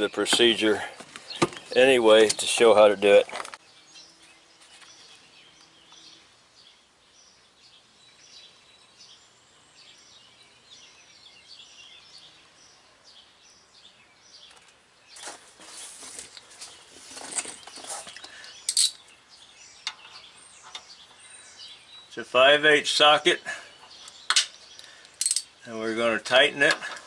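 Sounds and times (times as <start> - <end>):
rustling and scraping of handling: 0.0 - 3.6, 4.2 - 5.2, 14.4 - 19.2
faint birds chirping: 0.0 - 27.0.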